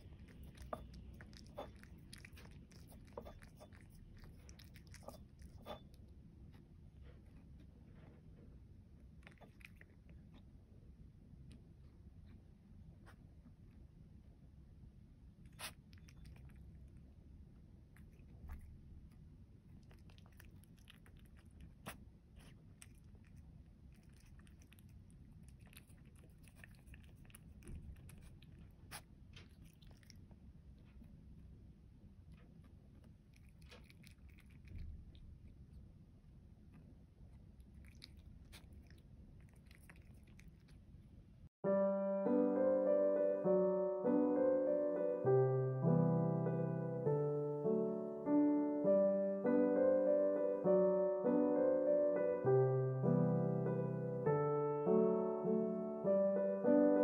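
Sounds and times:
cat chewing and licking: 0.0 - 13.8, 15.4 - 41.5.

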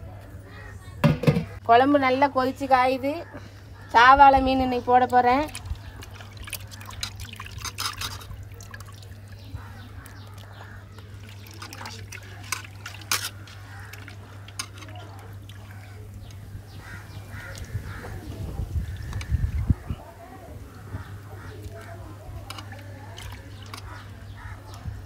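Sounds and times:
curry bubbling in a pot: 5.0 - 19.8
fish plopping into liquid: 5.5 - 9.4, 10.0 - 16.4.

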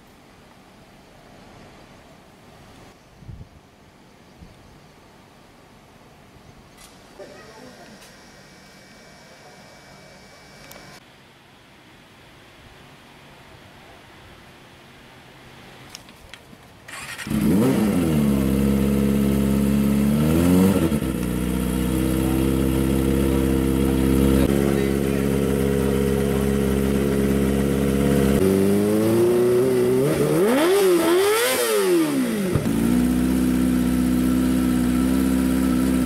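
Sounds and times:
loud engine idling and revving: 16.9 - 36.0.

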